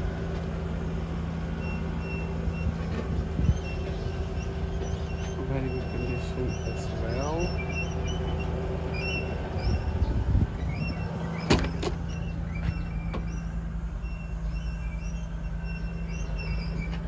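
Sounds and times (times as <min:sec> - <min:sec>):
engine idling: 0:00.0 - 0:17.0
knocks and bumps: 0:10.3 - 0:13.4.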